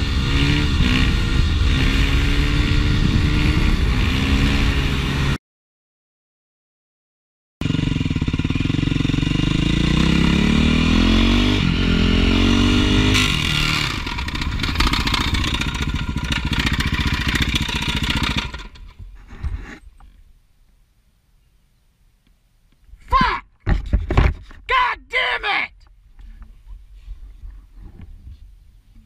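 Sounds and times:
dirt bike engine accelerating: 0:00.0 - 0:05.4, 0:07.6 - 0:19.5.

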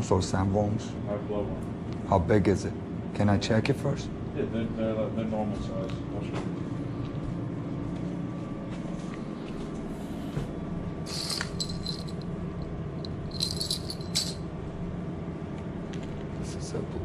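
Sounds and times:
small metal bells jingling: 0:11.1 - 0:12.2, 0:13.1 - 0:14.4.

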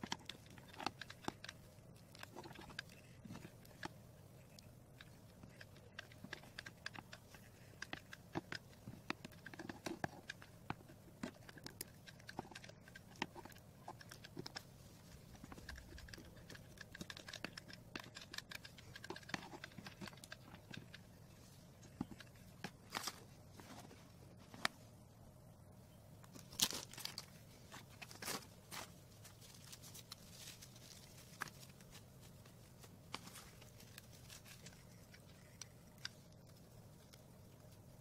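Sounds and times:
low steady hum: 0:00.0 - 0:38.0.

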